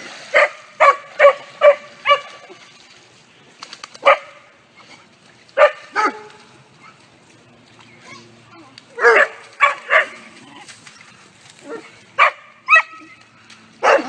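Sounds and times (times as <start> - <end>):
dog barking: 0.3 - 2.3, 4.0 - 4.4, 5.6 - 6.3, 9.0 - 10.2, 11.7 - 13.0, 13.8 - 14.0.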